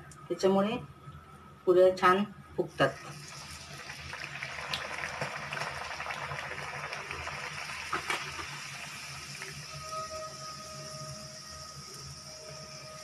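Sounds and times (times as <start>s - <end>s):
bread sizzling in hot oil: 3.0s - 13.0s.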